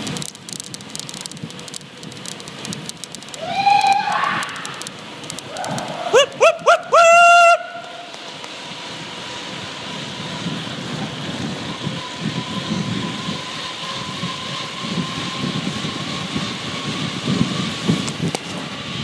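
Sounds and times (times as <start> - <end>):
wind buffeting microphone: 8.7 - 19.0.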